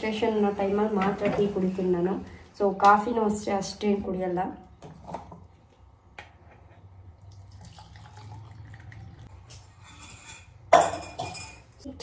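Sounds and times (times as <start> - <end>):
tea trickling into cup: 7.1 - 9.3.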